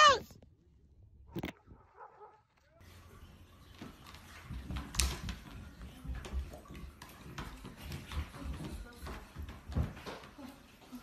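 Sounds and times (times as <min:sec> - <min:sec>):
thumps on a treadmill: 0:03.8 - 0:10.8.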